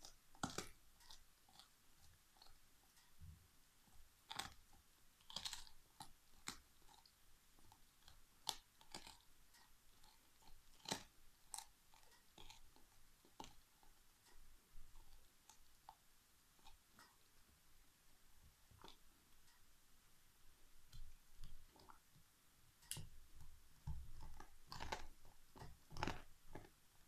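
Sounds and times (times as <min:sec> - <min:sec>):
dog chewing bone: 0:00.0 - 0:02.6, 0:04.3 - 0:14.0, 0:23.8 - 0:26.8.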